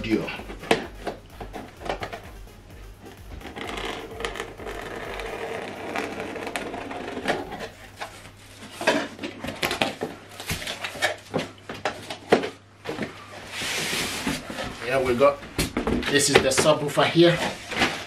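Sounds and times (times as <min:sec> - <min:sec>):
cardboard knocks and scrapes: 0:03.2 - 0:10.8
blade scratching packing tape: 0:03.5 - 0:07.7.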